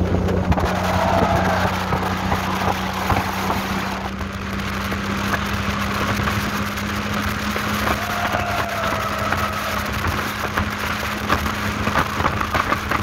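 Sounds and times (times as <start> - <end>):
motorboat engine drone: 0.0 - 13.0
wind and water rushing: 0.0 - 13.0.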